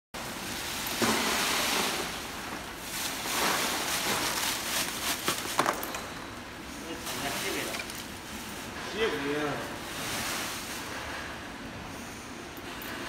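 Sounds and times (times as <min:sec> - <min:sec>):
plastic bag rustling: 0:00.2 - 0:06.1, 0:06.9 - 0:09.0.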